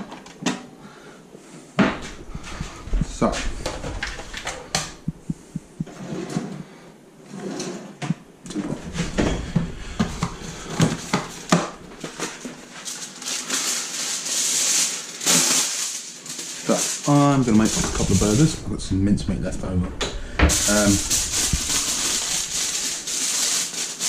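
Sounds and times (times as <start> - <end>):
kitchen items knocking and clattering: 1.8 - 6.0, 8.0 - 12.6, 16.7 - 19.0, 19.7 - 24.0
kitchen foil pulled off roll: 11.0 - 18.6, 20.5 - 24.0.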